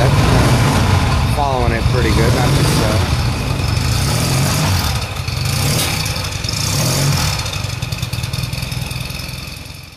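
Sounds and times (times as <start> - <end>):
motorcycle engine idling: 2.9 - 9.9.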